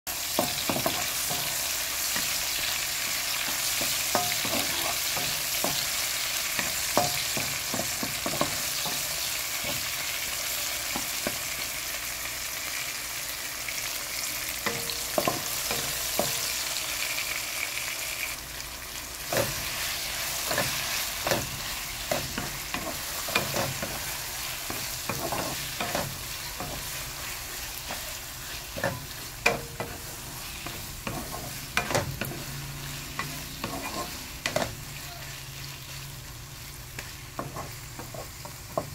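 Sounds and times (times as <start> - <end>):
vegetables sizzling in oil: 0.1 - 38.9
spatula scraping a pan: 0.2 - 10.2, 19.3 - 36.0, 37.0 - 38.9.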